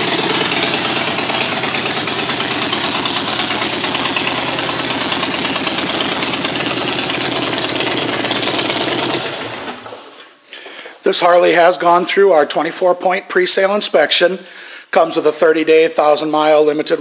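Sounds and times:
motorcycle engine idling: 0.0 - 10.1.

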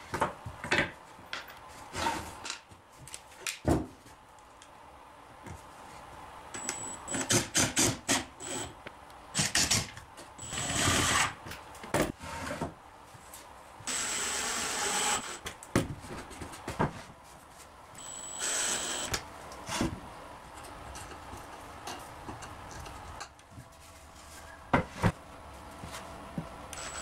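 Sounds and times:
small power tool running: 18.0 - 19.1.

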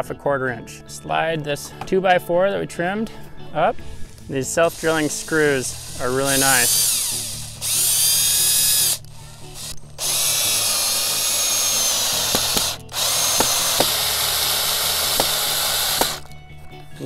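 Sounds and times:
cordless drill driving screws: 4.6 - 16.3.

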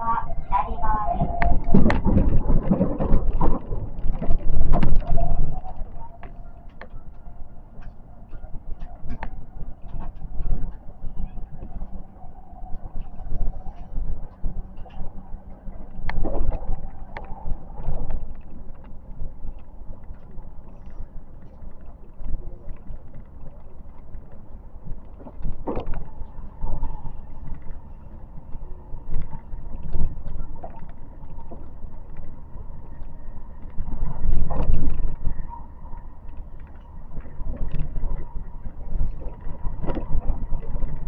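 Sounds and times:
train wheels rumbling on rails: 0.0 - 18.2.

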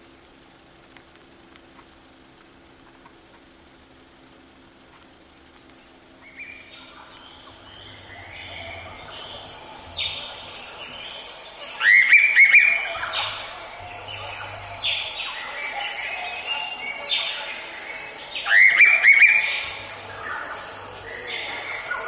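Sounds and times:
bird calls: 6.4 - 22.0
steady high-pitched drone: 6.5 - 22.0.

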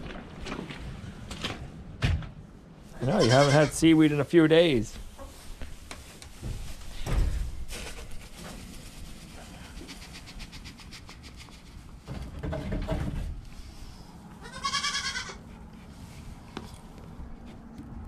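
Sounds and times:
goat bleating: 3.0 - 3.8, 14.4 - 15.4.

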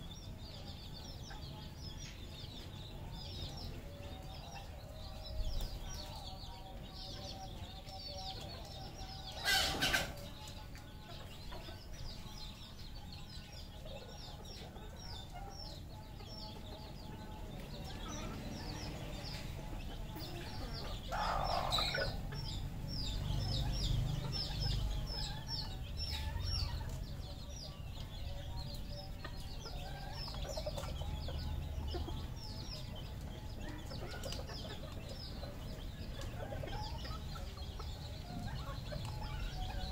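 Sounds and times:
junglefowl clucking and calling: 9.3 - 10.3, 20.2 - 22.4.

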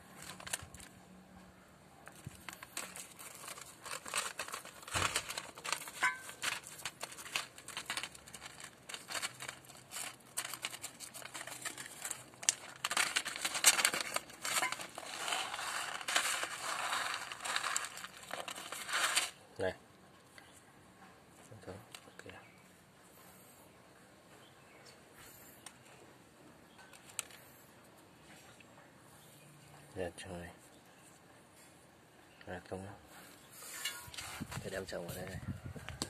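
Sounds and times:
plastic packet crinkling: 0.0 - 0.9, 2.0 - 19.4.

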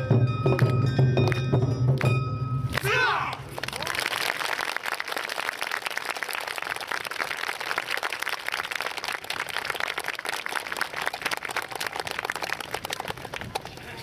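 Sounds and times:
audience applauding: 3.5 - 14.0.

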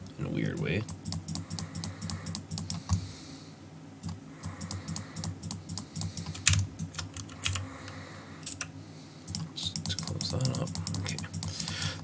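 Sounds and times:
keyboard and mouse clicking: 0.8 - 3.0, 4.0 - 7.6, 8.4 - 8.7, 9.3 - 12.0.

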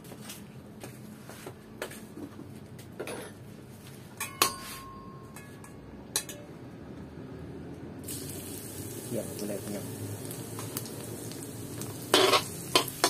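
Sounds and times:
hot oil sizzling: 8.0 - 13.0.

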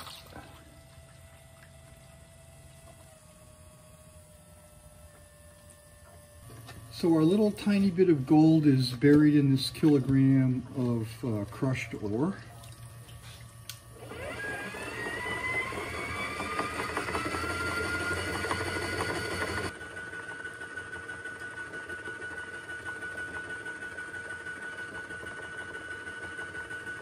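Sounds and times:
running water: 0.0 - 2.9
electric motor whining: 0.0 - 27.0.

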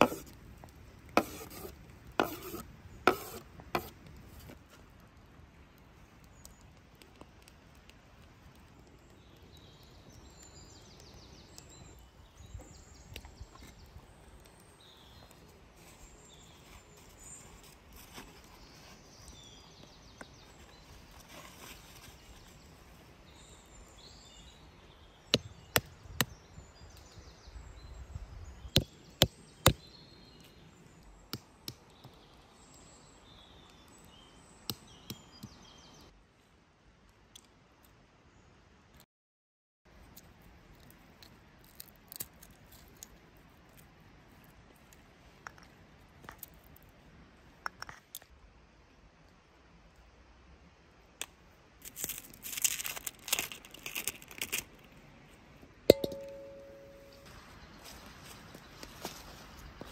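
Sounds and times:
faint birds chirping: 0.0 - 36.2, 42.4 - 59.9
walnut shells cracking: 40.2 - 43.2, 51.8 - 54.8.

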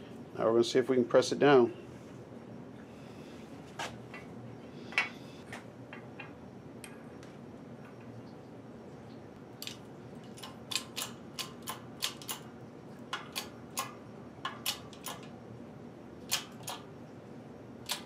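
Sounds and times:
sharp metallic clicks of press: 10.4 - 12.4, 13.1 - 15.3, 16.3 - 16.9.

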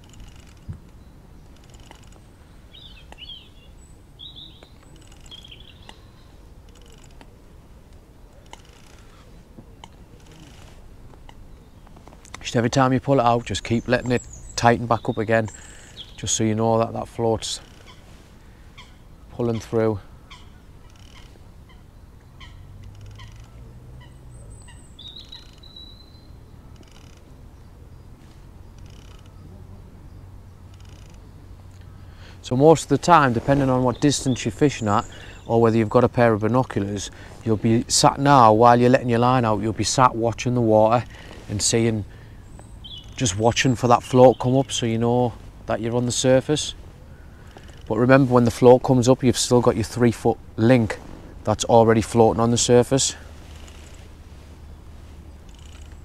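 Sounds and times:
ticking rasps: 0.0 - 3.4, 4.6 - 6.0, 12.0 - 19.8, 28.7 - 29.4, 30.7 - 54.1, 55.4 - 56.0
small bird chirping: 0.0 - 7.4, 13.2 - 36.5, 37.1 - 45.4, 53.1 - 56.0
faint low rumble: 44.8 - 56.0.

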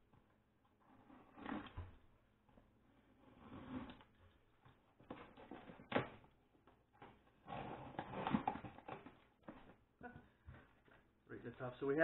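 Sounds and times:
cardboard scraping and rustling: 7.0 - 9.8.

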